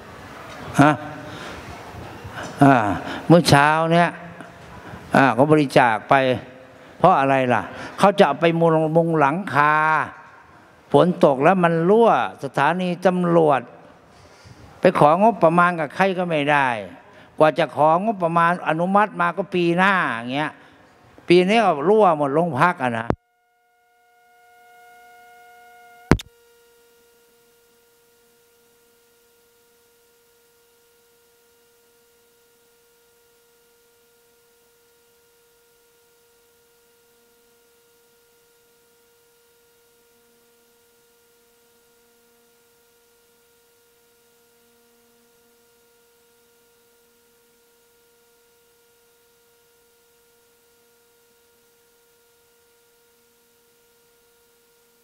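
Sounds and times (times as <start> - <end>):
faint steady electronic hum: 0.0 - 55.0
sharp click: 26.1 - 26.3.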